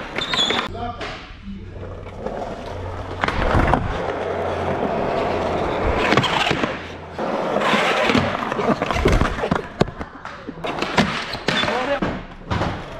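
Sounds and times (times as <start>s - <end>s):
skateboard wheels rolling on concrete: 1.7s - 11.4s.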